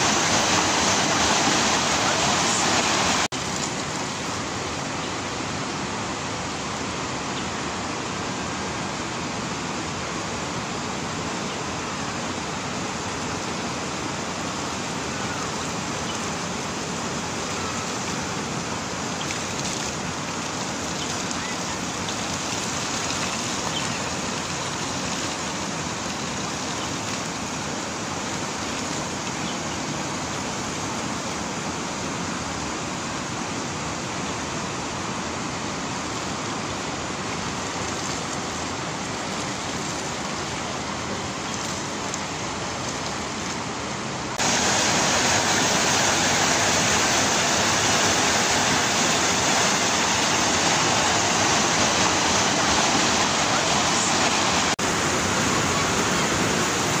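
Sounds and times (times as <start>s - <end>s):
river rushing over rapids: 0.0s - 57.0s.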